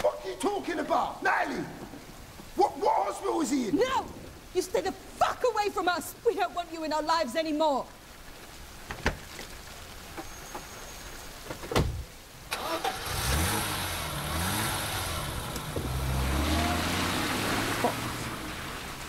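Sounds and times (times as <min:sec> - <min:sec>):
car engine starting and revving: 0:12.5 - 0:19.0.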